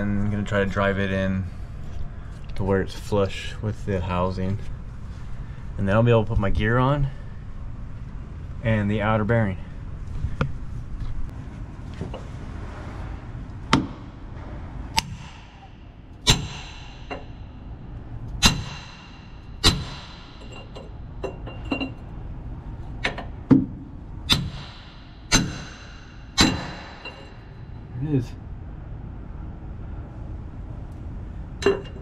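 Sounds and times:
hammer striking steel: 15.0s - 17.8s, 18.4s - 21.5s, 24.3s - 27.8s.

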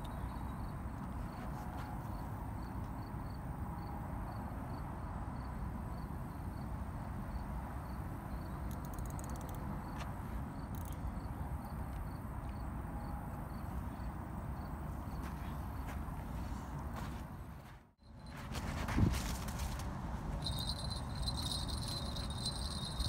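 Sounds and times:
insect chirping: 0.0s - 1.4s, 7.3s - 15.9s, 20.4s - 23.0s
faint ticks: 8.7s - 10.1s.

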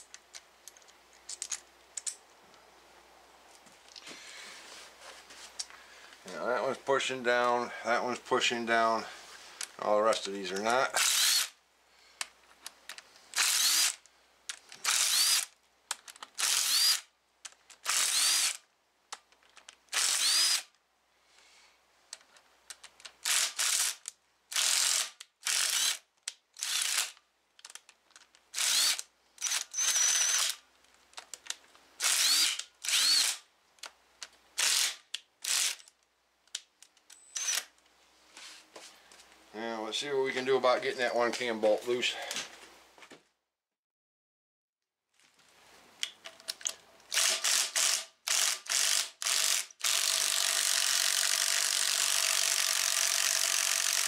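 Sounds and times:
cordless ratchet whirring: 11.0s - 11.6s, 13.4s - 14.0s, 14.8s - 15.5s, 16.4s - 17.1s, 17.8s - 18.6s, 19.9s - 20.7s, 23.2s - 26.0s, 28.6s - 30.6s, 32.0s - 33.4s, 47.1s - 54.0s.

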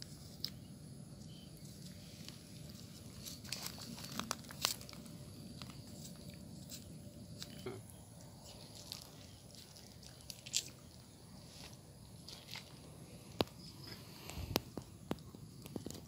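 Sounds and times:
fruit peel crackling and clicking: 3.3s - 11.0s.

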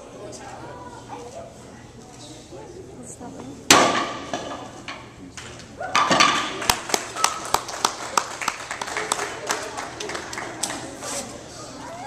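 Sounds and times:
people cheering: 5.8s - 10.9s
hand claps: 6.6s - 10.8s.

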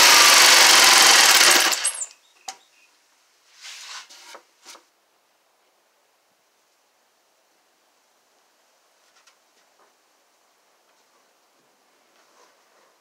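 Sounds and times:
jigsaw cutting wood: 0.0s - 2.0s
board handling sounds: 3.6s - 4.9s.

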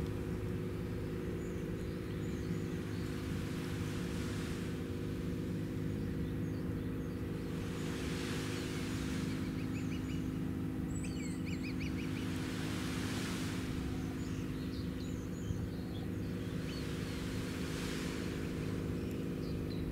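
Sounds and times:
low hum of ship machinery: 0.0s - 19.9s
small birds chirping: 0.0s - 19.9s
soft hiss: 16.2s - 19.6s.

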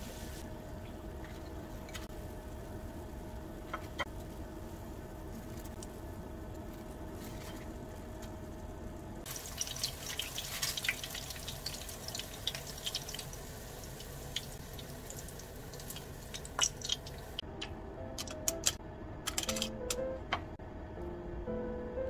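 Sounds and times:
food sizzling in oil: 0.0s - 6.1s, 9.2s - 17.4s.

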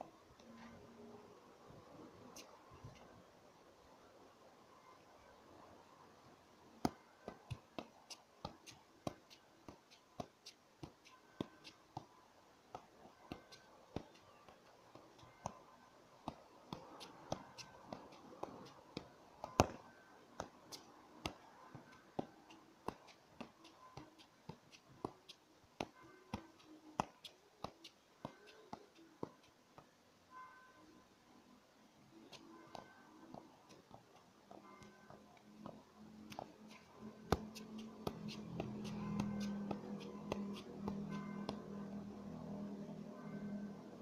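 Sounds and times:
football taps while juggled: 16.3s - 19.8s, 20.4s - 26.4s, 27.0s - 27.8s, 35.6s - 41.6s.

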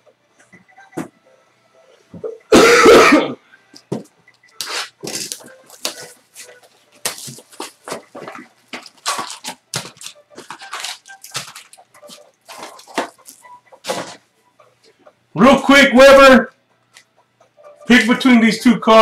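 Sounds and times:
person coughing: 2.5s - 3.4s
cards and foil wrappers rustling: 4.6s - 14.2s.

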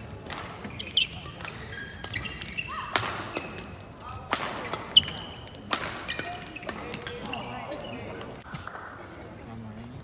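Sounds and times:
racket hitting shuttlecock: 0.1s - 7.3s
shoe squeaks on court floor: 0.6s - 3.7s, 4.6s - 8.2s.

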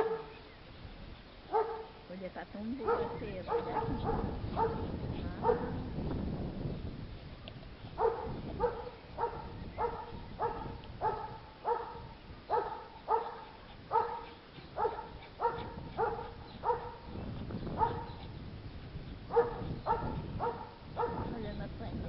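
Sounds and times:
small dog barking: 0.0s - 0.4s, 1.5s - 2.0s, 2.8s - 5.9s, 8.0s - 18.3s, 19.3s - 21.4s
paws digging in soil: 12.6s - 21.5s.

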